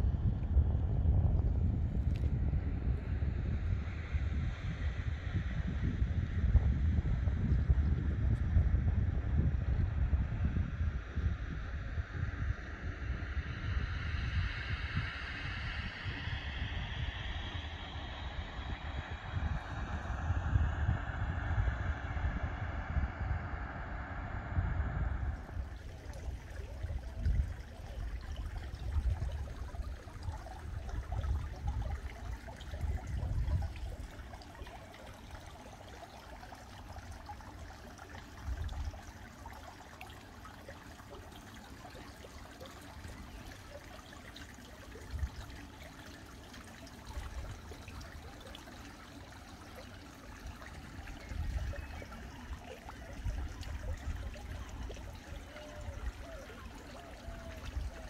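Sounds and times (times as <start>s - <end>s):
wind rumbling on microphone: 0.0s - 58.0s
water trickling: 25.4s - 58.0s.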